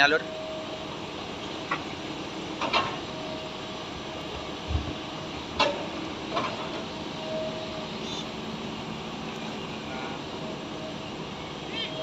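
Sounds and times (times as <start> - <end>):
excavator diesel engine drone: 0.0 - 12.0.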